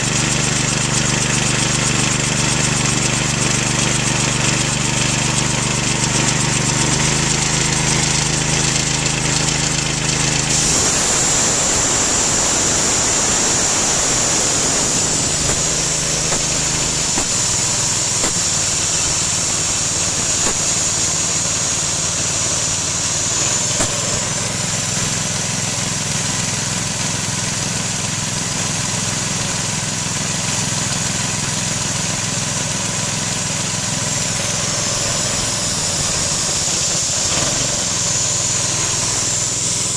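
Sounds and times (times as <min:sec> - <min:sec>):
engine running steadily: 0:00.0 - 0:39.9
steady high hiss: 0:10.5 - 0:26.8, 0:34.1 - 0:39.9.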